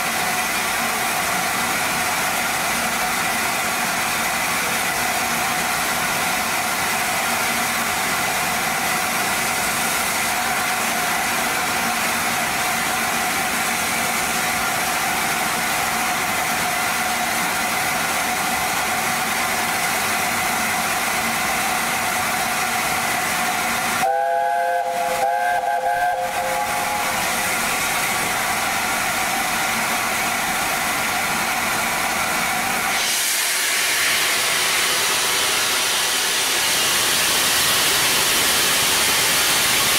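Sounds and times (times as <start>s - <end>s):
steam hissing: 0.0s - 39.9s
steam locomotive chime whistle: 24.0s - 27.5s
rush of steam from drain cocks: 31.2s - 39.9s.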